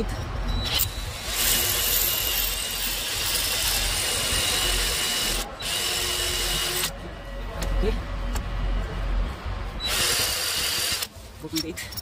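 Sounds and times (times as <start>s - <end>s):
electric drill whining: 0.7s - 6.9s, 9.8s - 11.1s.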